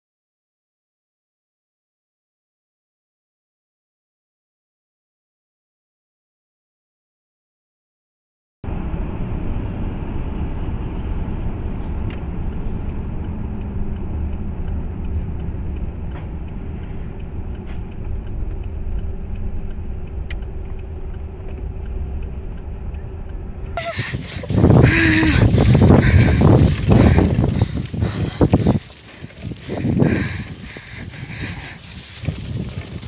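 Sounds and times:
car road and engine rumble: 8.6 - 33.0
loud rough noise: 8.7 - 33.0.

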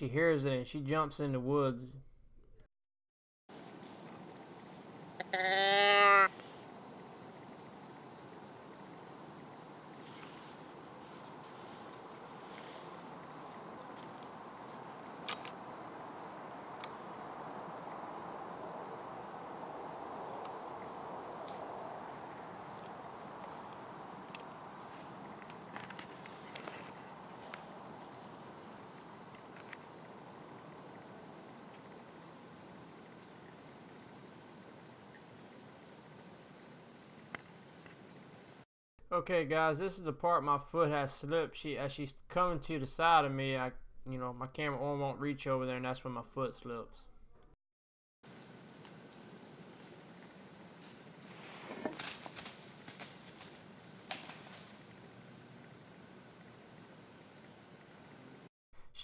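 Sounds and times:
crickets and insects chirping: 3.5 - 38.6, 48.2 - 58.5
loud wavering bleat: 5.2 - 6.4.

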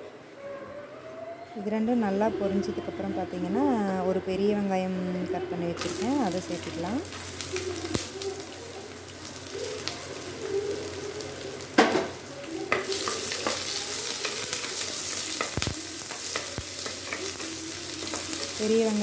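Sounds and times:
onions sizzling in hot oil: 5.8 - 19.0.

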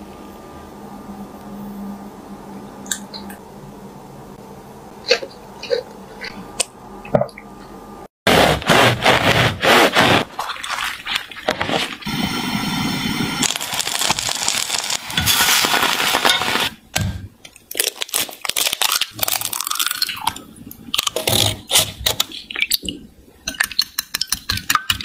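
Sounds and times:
egg cracking: 17.5 - 25.0.

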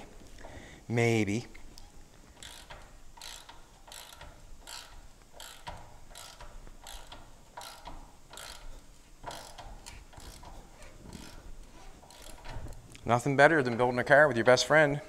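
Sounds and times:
ratchet wrench clicking: 1.8 - 12.8.

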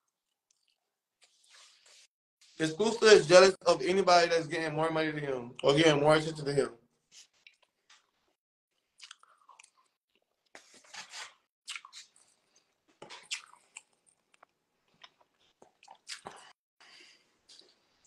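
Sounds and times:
person chewing food: 0.0 - 0.9, 8.8 - 10.6, 11.7 - 16.6.

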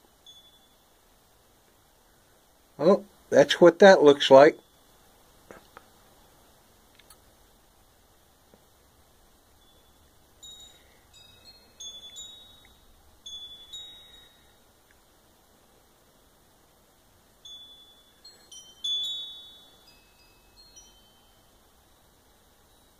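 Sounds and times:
high ringing chime notes: 0.2 - 1.2, 4.2 - 5.1, 9.5 - 14.8, 17.4 - 22.9.

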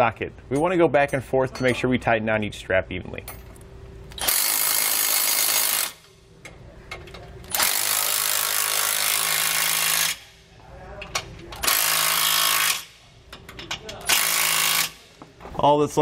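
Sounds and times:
impact wrench running: 4.1 - 6.1, 7.4 - 10.4, 11.6 - 15.3.

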